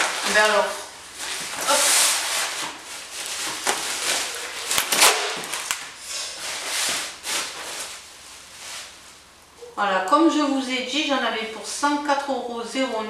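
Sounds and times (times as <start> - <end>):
paper and plastic wrapping rustling: 0.0 - 9.2.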